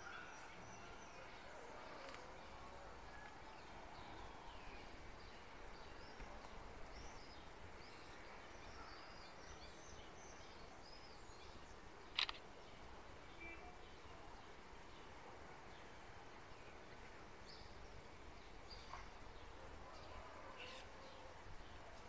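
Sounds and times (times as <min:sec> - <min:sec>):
phone camera shutter click: 0:12.1 - 0:12.4.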